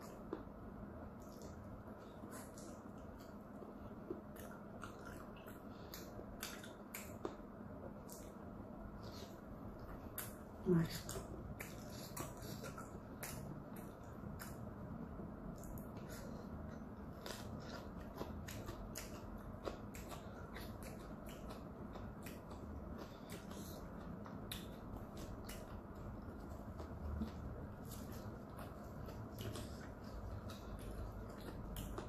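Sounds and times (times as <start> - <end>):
faint low hum: 0.0 - 32.0
wet mouth chewing clicks: 4.1 - 7.4.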